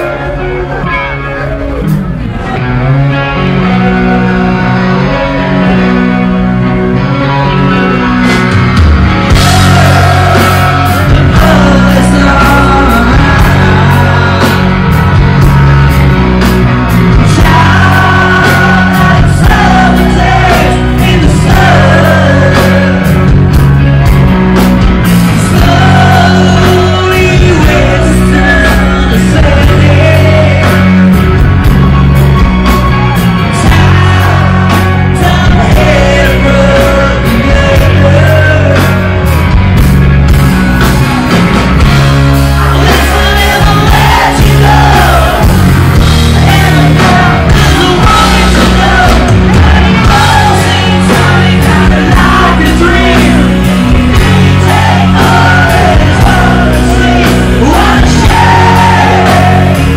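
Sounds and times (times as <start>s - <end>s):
electric guitar: 0.0s - 59.9s
drums with steady beat: 8.2s - 59.9s
man singing: 9.3s - 14.6s, 17.1s - 23.6s, 25.4s - 31.2s, 33.5s - 39.2s, 42.6s - 59.9s.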